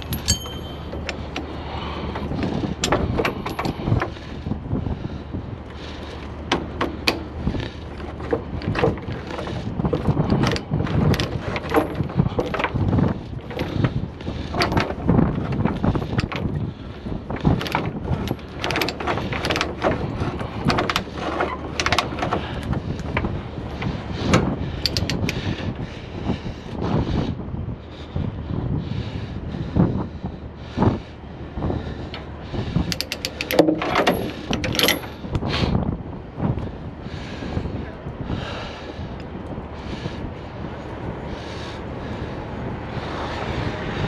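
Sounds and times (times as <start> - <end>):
steel chain clanking on metal: 0.0 - 4.1, 8.0 - 13.9, 32.9 - 35.3
wind buffeting microphone: 0.0 - 44.0
ratchet clicks: 17.4 - 25.4, 32.1 - 35.5.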